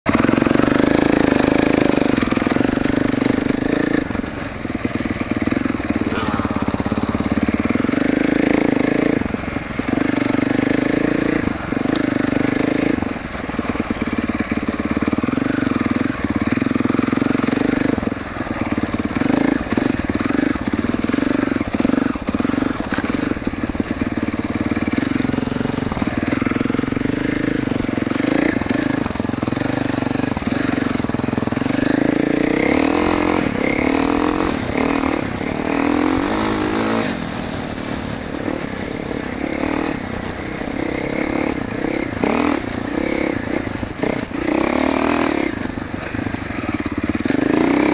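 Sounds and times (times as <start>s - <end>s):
dirt bike engine running: 0.1s - 47.9s.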